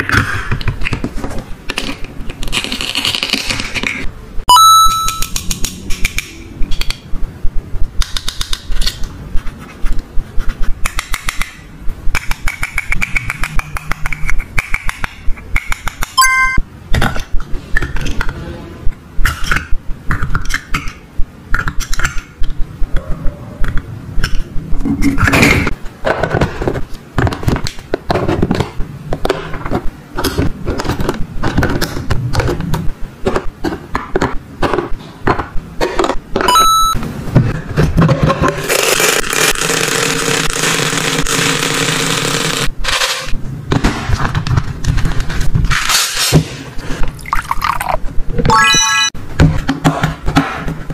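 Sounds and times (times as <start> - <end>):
ringing ding: 4.5 - 5.3, 16.2 - 16.6, 36.5 - 37.0.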